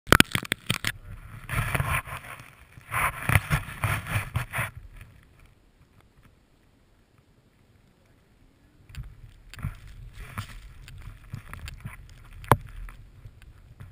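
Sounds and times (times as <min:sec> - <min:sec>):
snowboard cutting through snow: 0:01.0 - 0:05.0.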